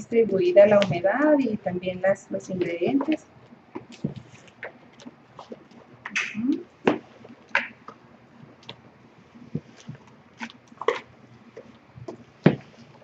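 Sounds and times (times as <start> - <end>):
spoon stirring sticky dough: 6.7 - 13.0.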